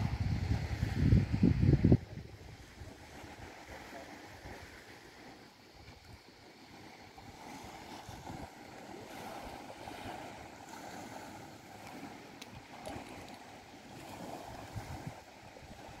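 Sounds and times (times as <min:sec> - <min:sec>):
wind gusting on microphone: 0:00.0 - 0:06.2, 0:13.9 - 0:16.0
small waves washing onto beach: 0:00.0 - 0:16.0.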